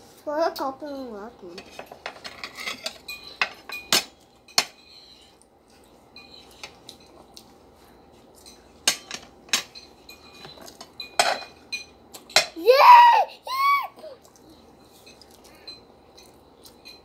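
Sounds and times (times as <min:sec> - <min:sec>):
cutlery clinking on plates: 0:01.6 - 0:05.0, 0:08.4 - 0:12.6, 0:14.9 - 0:17.0.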